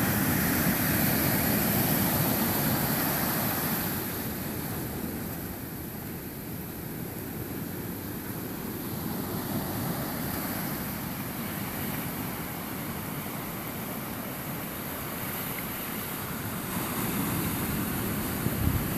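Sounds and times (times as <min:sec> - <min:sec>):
ocean surf breaking: 0:00.0 - 0:18.9
wind rumble on microphone: 0:16.5 - 0:18.9.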